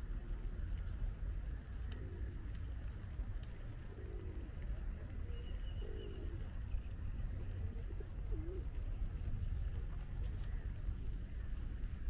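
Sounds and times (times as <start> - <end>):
pigeon cooing: 3.9 - 4.5, 7.7 - 8.7.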